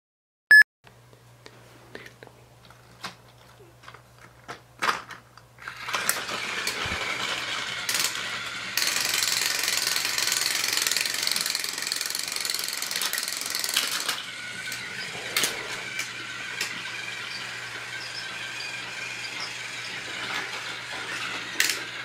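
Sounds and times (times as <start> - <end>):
toy handling clicks: 3.8 - 16.8, 21.3 - 22.0
toy train motor whirr: 5.6 - 22.0.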